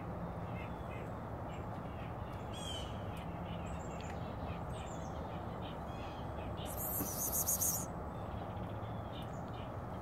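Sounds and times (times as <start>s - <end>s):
outdoor background noise: 0.0s - 10.0s
distant bird calls: 0.2s - 10.0s
faint high chirps: 6.6s - 7.9s.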